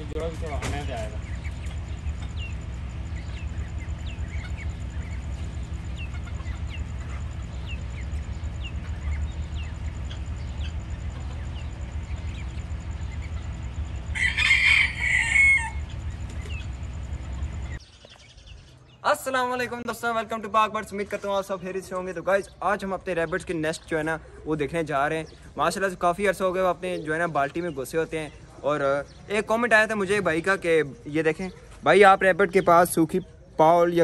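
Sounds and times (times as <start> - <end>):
steady low rumble: 0.0 - 17.8
chick peeping: 0.0 - 19.6
rooster crowing: 14.0 - 16.7.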